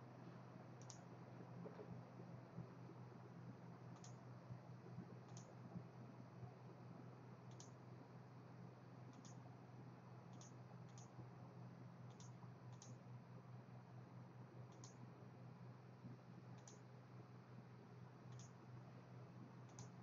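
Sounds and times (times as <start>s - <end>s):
low electrical hum: 0.0s - 20.0s
computer mouse clicks: 0.8s - 1.0s, 4.0s - 4.2s, 5.2s - 5.6s, 7.5s - 7.8s, 9.1s - 9.4s, 10.3s - 11.2s, 12.1s - 13.0s, 14.7s - 15.0s, 16.6s - 16.9s, 18.3s - 18.6s, 19.6s - 20.0s.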